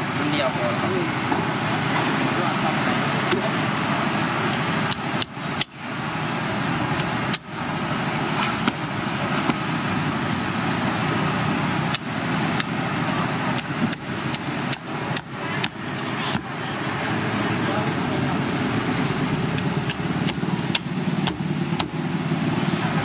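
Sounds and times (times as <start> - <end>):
road traffic: 0.0 - 23.0
cleaver chopping fish: 19.4 - 22.0.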